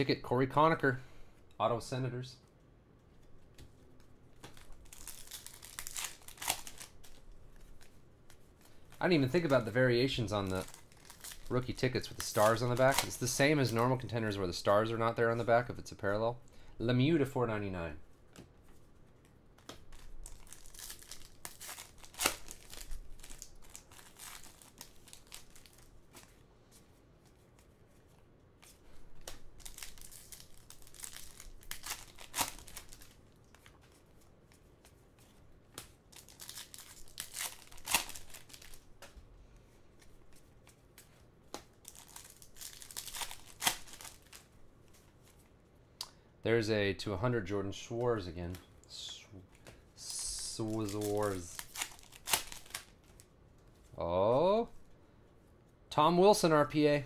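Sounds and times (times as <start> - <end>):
foil wrappers crinkling and tearing: 4.4 - 14.1, 19.8 - 26.4, 29.1 - 34.8, 35.8 - 39.0, 40.2 - 45.3, 50.0 - 53.3.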